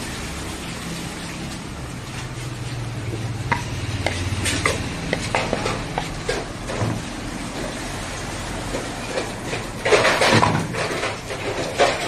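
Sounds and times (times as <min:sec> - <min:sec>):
spoon scraping a plastic bowl: 0:03.1 - 0:06.8.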